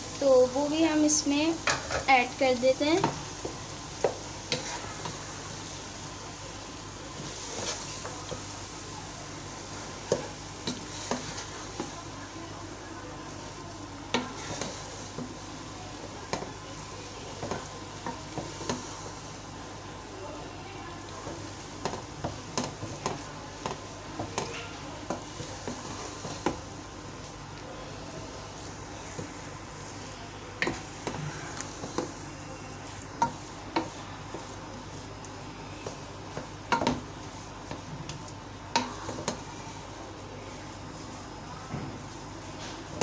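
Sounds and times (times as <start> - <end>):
faint sizzle: 0.0 - 43.0
wooden spatula scraping pot: 0.7 - 5.3, 7.2 - 8.4, 10.1 - 12.0, 14.1 - 15.4, 17.3 - 19.2, 21.2 - 26.7.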